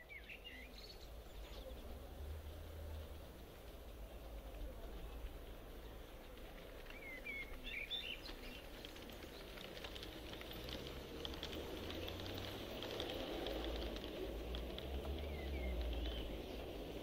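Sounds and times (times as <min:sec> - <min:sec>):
bird chirping: 0:00.0 - 0:09.6, 0:15.1 - 0:17.0
model train wheels clicking: 0:01.9 - 0:17.0.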